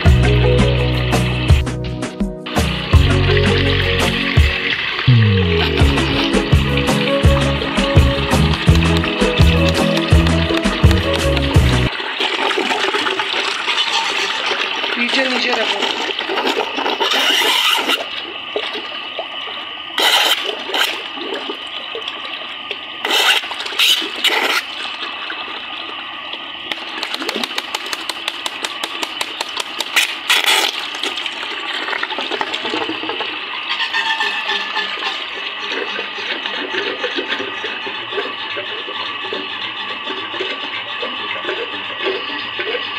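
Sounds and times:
water gushing into plastic tub: 2.5 - 42.9
water splashing over hand: 2.6 - 18.8, 26.7 - 33.2.

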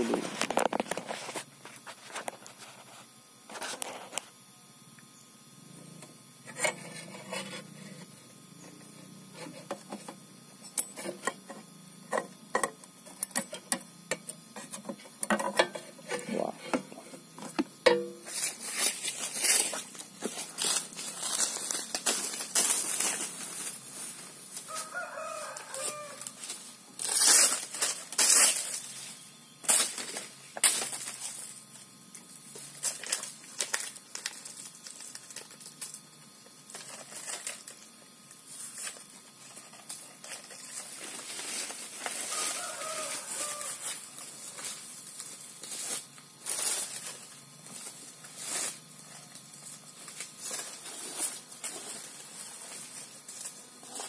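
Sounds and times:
dry leaves being torn: 18.2 - 29.0, 32.5 - 36.1, 38.6 - 54.0
chicken calling: 24.7 - 26.3, 42.3 - 44.0.

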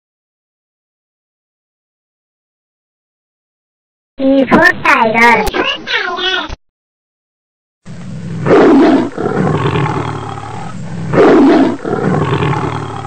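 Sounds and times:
low rumbling growl: 7.9 - 13.0
tiger roaring: 7.9 - 13.0.

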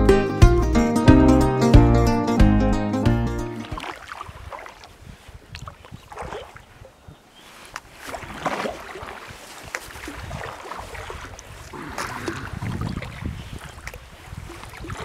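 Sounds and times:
paddle splashes in water: 3.5 - 15.0.

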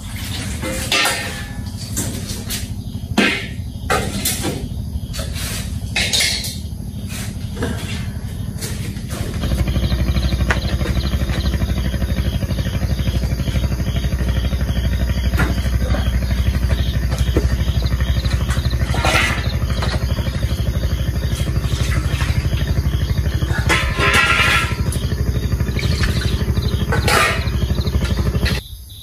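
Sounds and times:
low pulsing drone: 0.0 - 28.6
pots and dishes clinking: 0.4 - 2.2.

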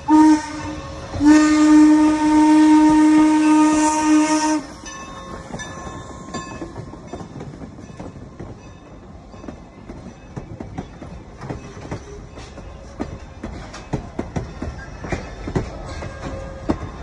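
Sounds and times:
steam whistle blast: 0.0 - 4.8
train wheels clicking over rail joints: 0.0 - 17.0.

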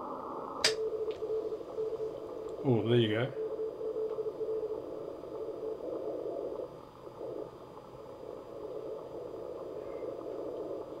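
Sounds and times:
radio band noise hiss: 0.0 - 11.0
faint morse code tone: 0.6 - 6.6.

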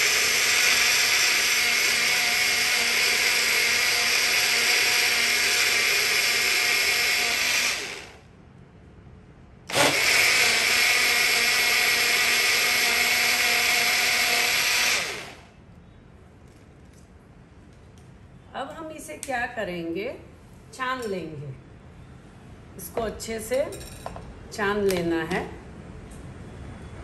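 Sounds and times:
mixer grinder blending: 0.0 - 8.2, 9.7 - 15.5.

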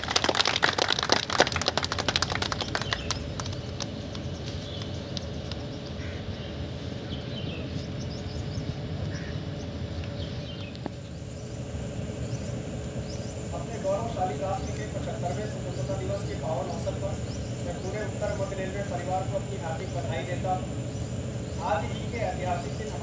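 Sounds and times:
hand claps of applause: 0.0 - 6.0
birds chirping: 0.0 - 23.0
low outdoor hum: 0.0 - 23.0.

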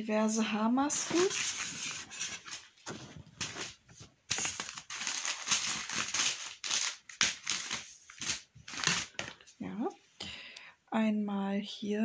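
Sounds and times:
bag and packaging crinkling: 1.0 - 9.5.

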